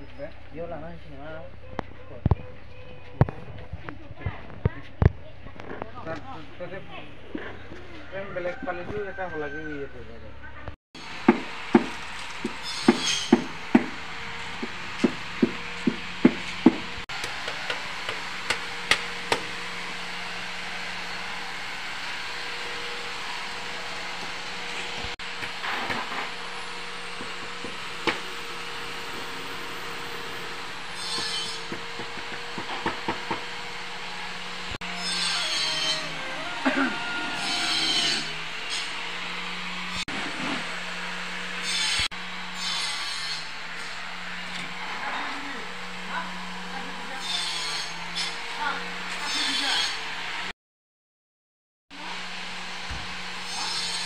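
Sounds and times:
hammer knocking on wood: 11.2 - 14.0, 14.6 - 19.5, 31.2 - 33.5
tool scraping wood: 11.2 - 20.0, 22.0 - 36.2, 37.3 - 40.9.

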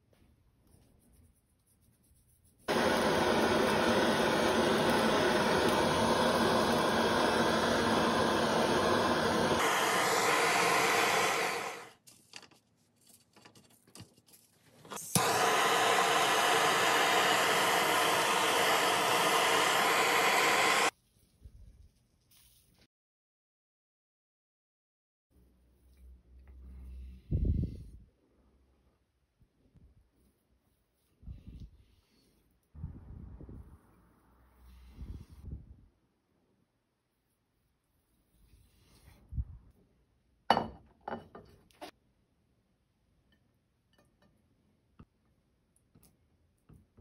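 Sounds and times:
kitchen torch flame hissing: 2.7 - 12.0, 14.9 - 20.9
torch sharp click: 14.9 - 20.9.

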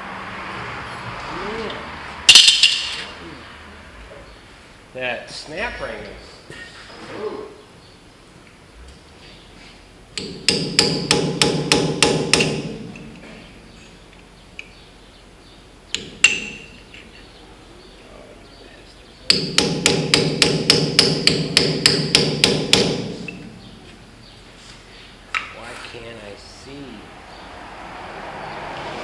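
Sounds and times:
hammer striking steel: 2.3 - 3.1, 10.2 - 13.2, 16.0 - 16.8, 19.3 - 23.6.

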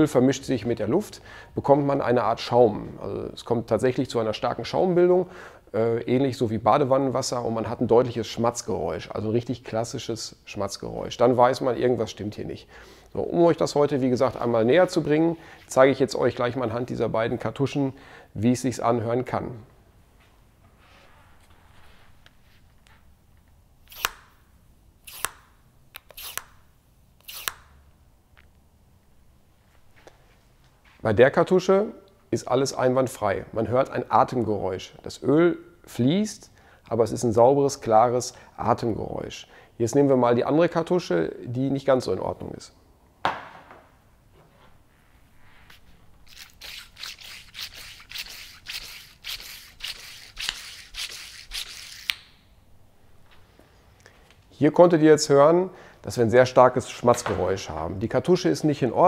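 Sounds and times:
sharp click: 23.9 - 24.3, 52.0 - 52.4
handling knock: 43.2 - 44.0, 57.1 - 57.6.

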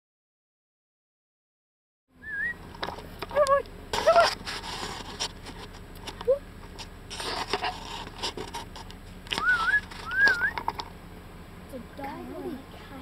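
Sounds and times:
person whistling: 2.2 - 2.6, 9.4 - 10.6
short call: 9.4 - 10.6.

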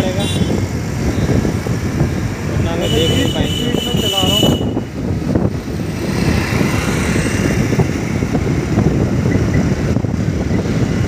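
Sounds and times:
wind and road noise: 0.0 - 11.0.

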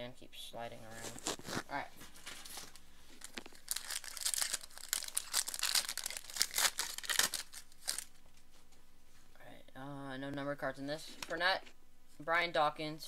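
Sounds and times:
wrapper crinkling and tearing: 0.8 - 8.1.

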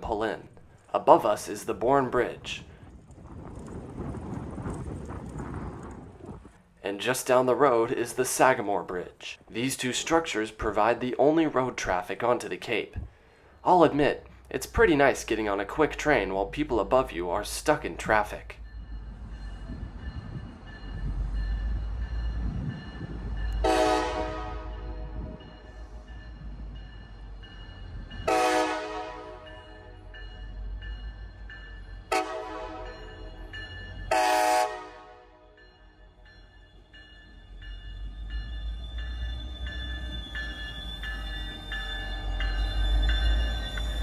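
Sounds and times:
train rumble: 0.0 - 8.3, 12.9 - 35.0
crossing warning bell ringing: 13.6 - 44.0
locomotive air horn: 23.6 - 25.4, 28.3 - 30.0, 32.1 - 33.0, 34.1 - 35.5.

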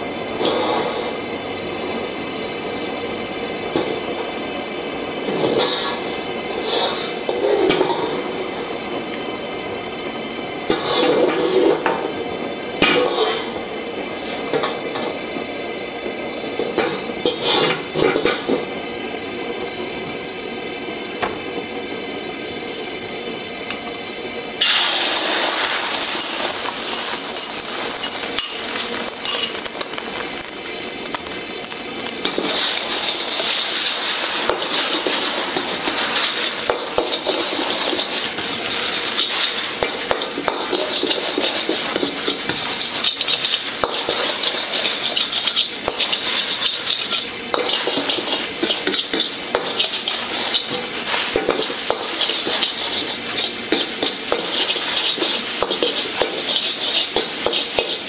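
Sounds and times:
eggs sizzling in hot oil: 0.0 - 58.0
metal ladle scraping wok: 24.6 - 30.6, 31.7 - 58.0
wok clinking on burner grate: 25.7 - 33.7, 34.4 - 58.0.

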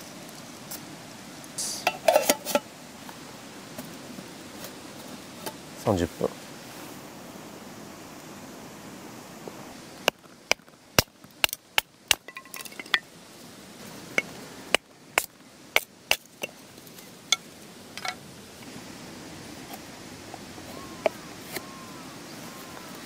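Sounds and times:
steady hiss: 0.0 - 23.0
cookware and utensils clinking: 1.8 - 2.7, 12.3 - 13.0.

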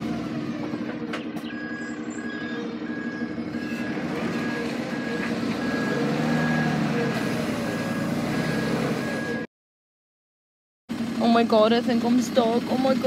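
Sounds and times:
diesel engine running: 0.0 - 9.5, 10.9 - 13.0
reversing alarm beeping: 1.4 - 9.5.

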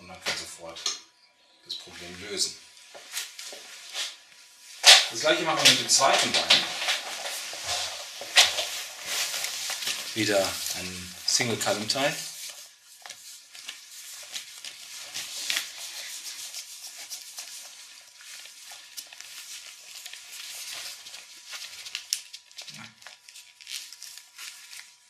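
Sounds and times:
rope sliding and rubbing: 2.7 - 22.2.

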